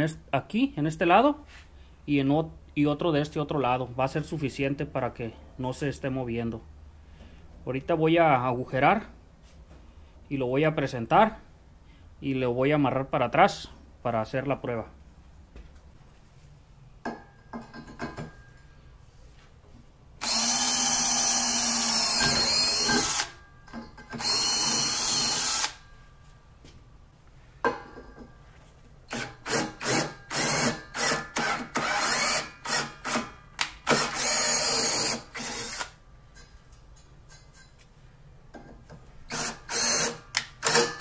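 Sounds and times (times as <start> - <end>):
drill boring into steel: 20.2 - 23.4, 24.2 - 25.8, 29.1 - 33.2, 33.9 - 36.0, 39.3 - 40.9.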